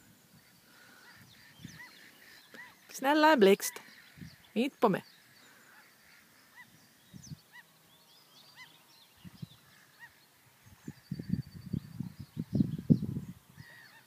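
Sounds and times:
small birds chirping: 0:00.0 - 0:14.0
bird honking calls: 0:00.4 - 0:03.0, 0:09.6 - 0:10.3.

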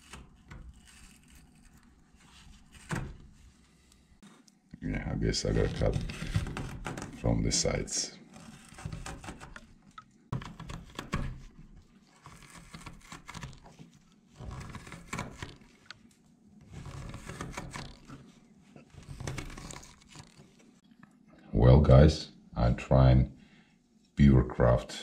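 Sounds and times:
knife scraping wood: 0:00.0 - 0:04.5, 0:08.2 - 0:09.7, 0:10.4 - 0:15.9, 0:16.6 - 0:20.7.

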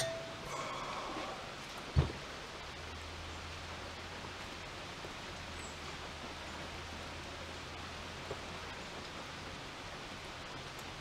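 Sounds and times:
low hum: 0:00.0 - 0:01.7
steady hiss: 0:00.0 - 0:11.0.

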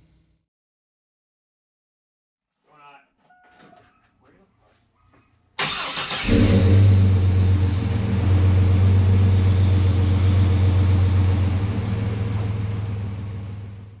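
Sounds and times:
engine running with low drone: 0:06.2 - 0:14.0.

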